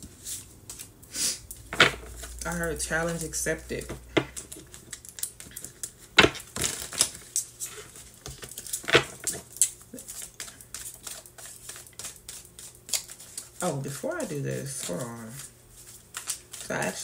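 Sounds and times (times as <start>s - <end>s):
cards and pouch rustling: 1.6s - 17.0s.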